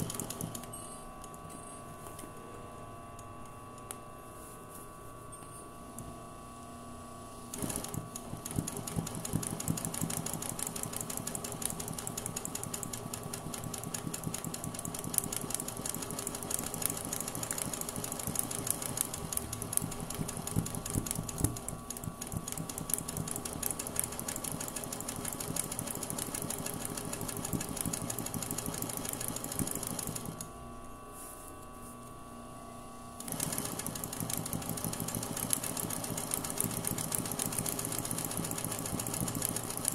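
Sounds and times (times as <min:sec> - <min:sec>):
sewing machine stitching: 0:00.0 - 0:00.6, 0:07.5 - 0:30.4, 0:33.2 - 0:39.9.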